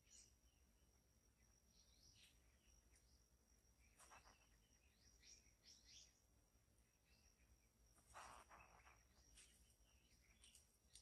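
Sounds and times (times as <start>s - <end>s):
high insect tone: 0.0s - 11.0s.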